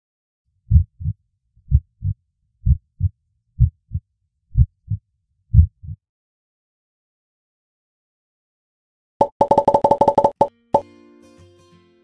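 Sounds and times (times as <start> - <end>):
heartbeat thumps: 0.7 - 6.0.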